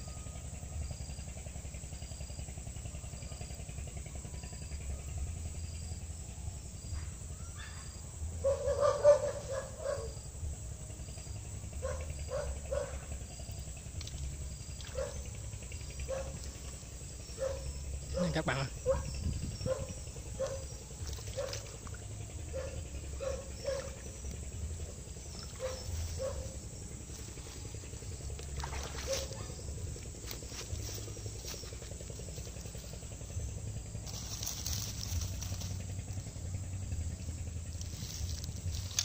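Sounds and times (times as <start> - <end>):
wind on microphone: 18.8 - 20.6.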